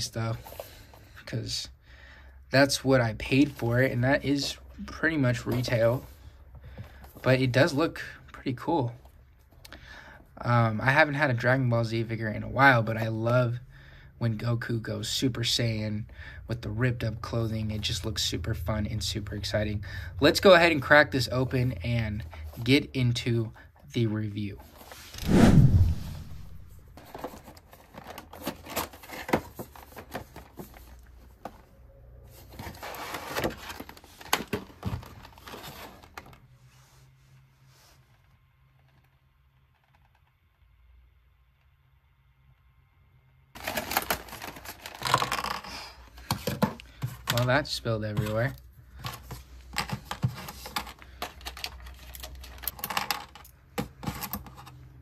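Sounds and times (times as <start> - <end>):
packaging crinkling and rustling: 26.6 - 31.2, 32.5 - 36.4, 43.6 - 54.8.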